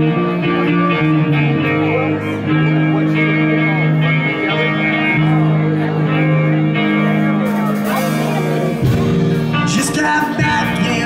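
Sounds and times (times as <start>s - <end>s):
electric guitars sustained chords: 0.0s - 11.0s
live band playing amplified music: 0.0s - 11.0s.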